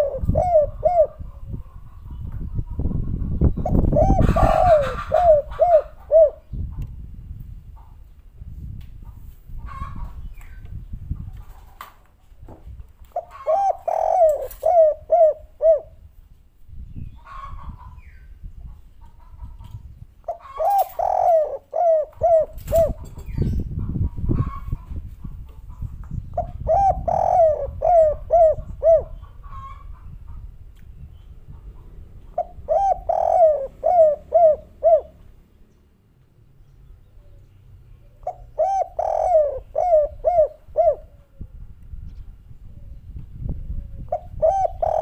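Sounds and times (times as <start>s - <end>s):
dove cooing: 0.0s - 2.3s, 3.0s - 6.6s, 13.1s - 16.0s, 20.2s - 23.6s, 26.4s - 29.9s, 31.7s - 35.3s, 38.1s - 41.5s, 43.7s - 45.0s.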